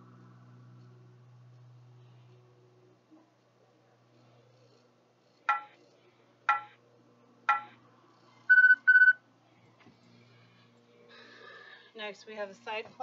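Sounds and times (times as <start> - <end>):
electronic timer beeps: 6.5 - 6.8, 7.5 - 7.8, 8.5 - 9.2.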